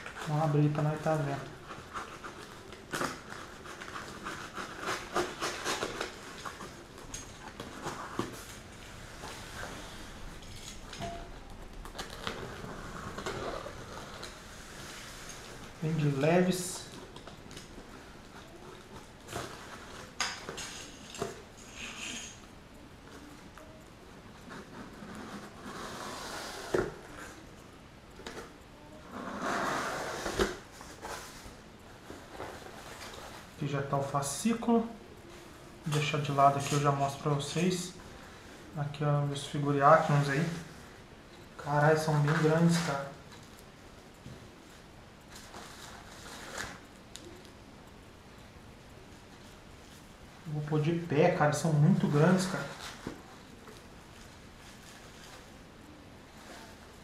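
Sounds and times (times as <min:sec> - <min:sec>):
knife scraping cardboard box: 0:01.8 - 0:06.8, 0:29.2 - 0:30.6.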